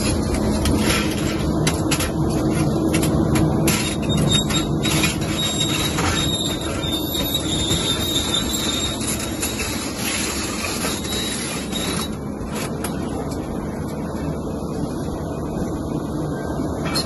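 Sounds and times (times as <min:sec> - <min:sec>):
excavator engine drone: 0:00.0 - 0:17.0
thin high squeal: 0:03.9 - 0:12.2.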